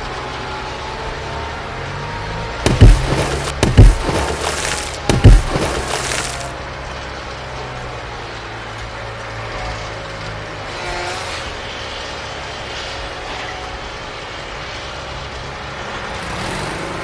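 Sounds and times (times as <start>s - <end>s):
loud heavy thumps: 2.6s - 6.5s
cracking splintering crackle: 2.6s - 7.6s
low hum: 2.7s - 6.5s.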